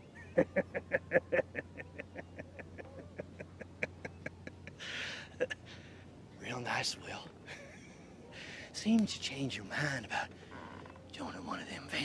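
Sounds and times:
man laughing mockingly: 0.1s - 5.6s.

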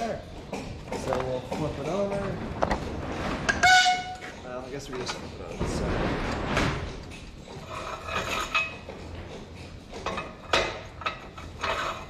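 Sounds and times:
metal clinks and clanks: 6.9s - 12.0s.

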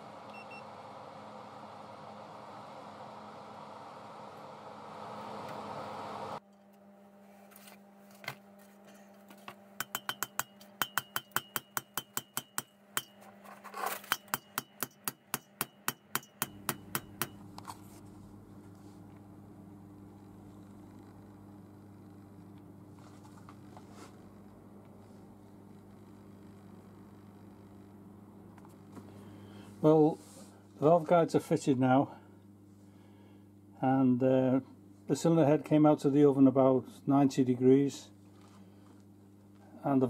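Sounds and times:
hammer striking metal: 9.8s - 13.2s, 14.1s - 17.4s.

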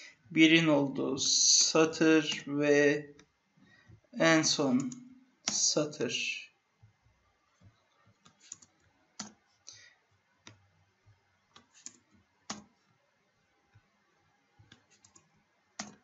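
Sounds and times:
computer keys clicking: 4.8s - 5.7s, 8.2s - 9.4s, 11.6s - 12.7s, 14.7s - 16.0s.

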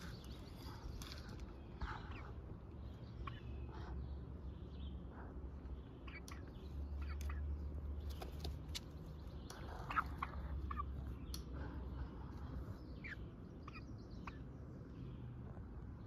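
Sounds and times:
hens clucking: 9.4s - 14.4s.

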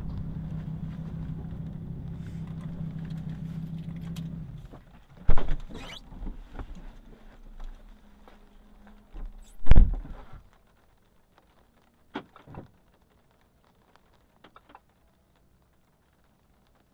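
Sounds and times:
low hum: 0.0s - 10.4s.

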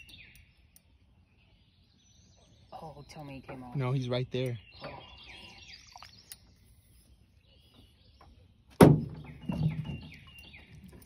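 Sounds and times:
birds chirping: 0.0s - 11.0s
hollow thump on boat hull: 8.8s - 10.2s.

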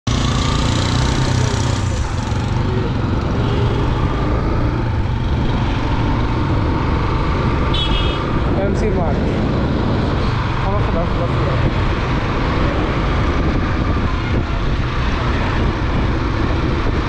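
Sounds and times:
motorcycle engine running: 0.1s - 17.0s
wind noise on microphone: 4.0s - 17.0s.

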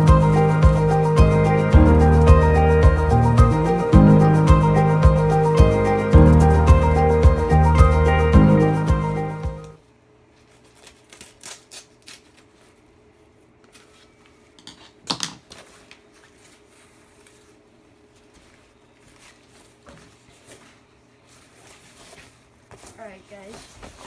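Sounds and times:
scissors cutting fabric: 10.8s - 12.3s
fabric rustling: 15.6s - 24.0s.

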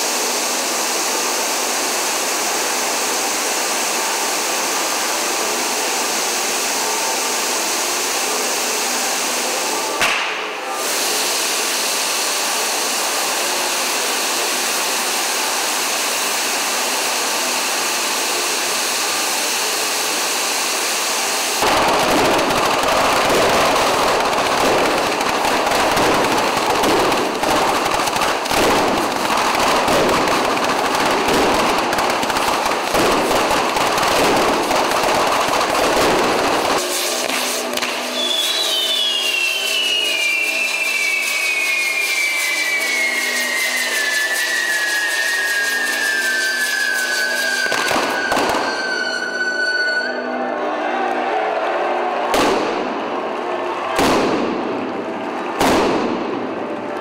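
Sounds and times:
firecrackers crackling: 0.0s - 50.1s, 52.2s - 57.0s
fountain fireworks hissing: 0.0s - 50.2s, 54.0s - 57.0s.

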